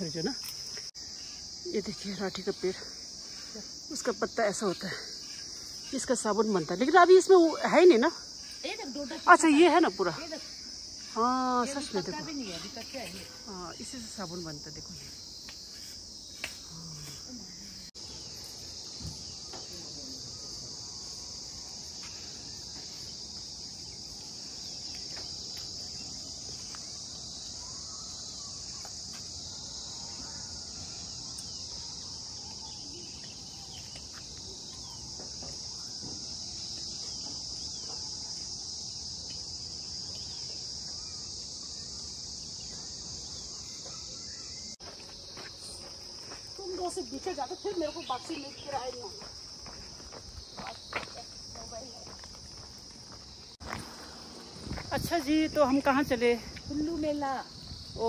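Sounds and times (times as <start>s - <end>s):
insects chirring: 0.0s - 58.0s.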